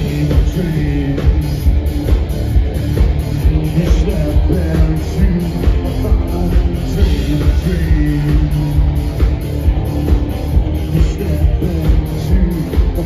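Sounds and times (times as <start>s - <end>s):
person singing: 0.0s - 1.7s, 3.4s - 8.9s, 10.7s - 13.0s
guitar: 0.0s - 13.0s
heavy steady beat: 0.0s - 13.0s
live electro-industrial band: 0.0s - 13.0s.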